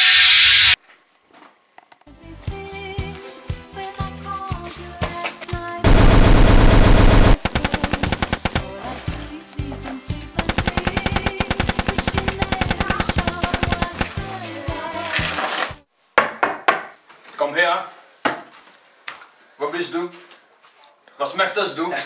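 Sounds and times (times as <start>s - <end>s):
background music: 2.1s - 5.9s, 7.3s - 15.8s
rapid machine-gun fire: 5.8s - 8.7s, 10.4s - 14.3s.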